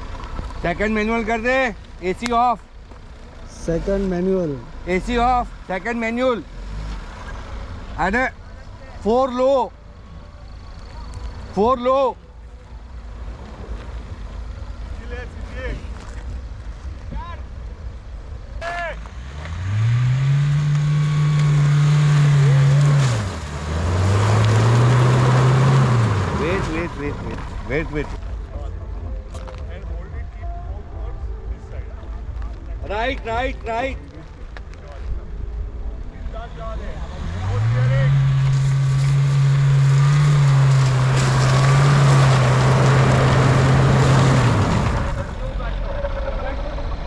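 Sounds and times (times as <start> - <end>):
off-road vehicle engine revving: 0.0 - 8.3, 18.6 - 28.3, 36.5 - 47.0.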